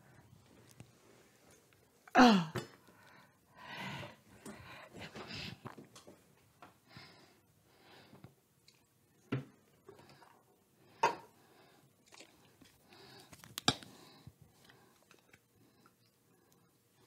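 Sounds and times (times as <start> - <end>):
breathing: 2.8 - 5.7, 6.9 - 8.3, 9.9 - 11.9, 12.8 - 17.0.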